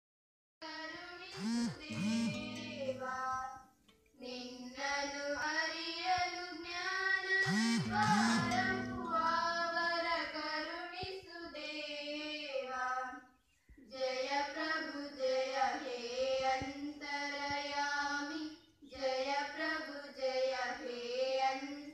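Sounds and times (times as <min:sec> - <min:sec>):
children singing together: 0:07.8 - 0:10.8.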